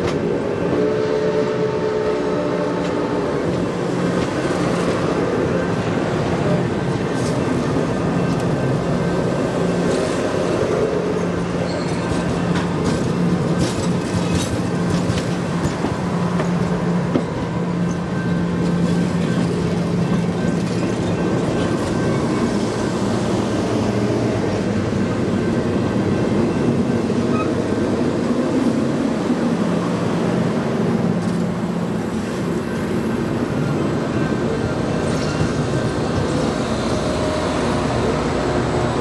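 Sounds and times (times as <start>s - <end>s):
train wheels rumbling on rails: 0.0s - 39.0s.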